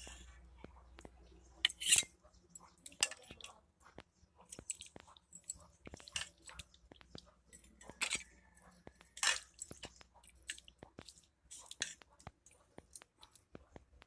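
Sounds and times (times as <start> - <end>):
ladle clinking on metal: 1.6 - 2.2, 7.5 - 8.4, 9.1 - 9.7
wet squelches of gravy: 2.6 - 14.0.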